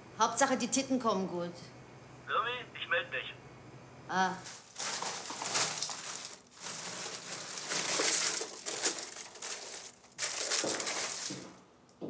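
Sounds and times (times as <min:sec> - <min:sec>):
plastic and foil crinkling: 0:04.4 - 0:11.7.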